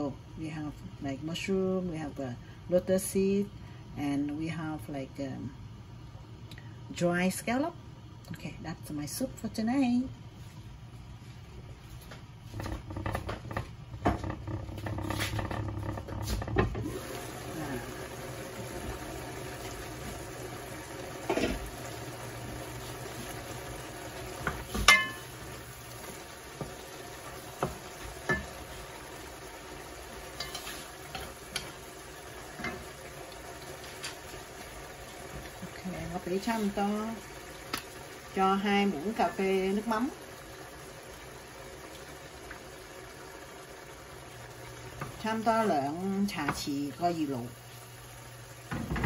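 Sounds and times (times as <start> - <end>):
stir-fry sizzling: 10.3 - 49.0
wooden spatula scraping pan: 12.5 - 16.8.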